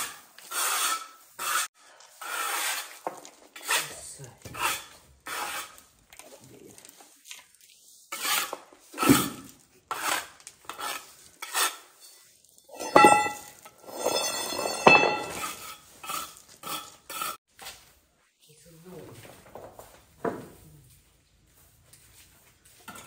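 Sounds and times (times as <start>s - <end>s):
metal scraping on metal: 0.0s - 5.9s, 8.1s - 17.4s
metal clanks ringing: 12.0s - 15.6s.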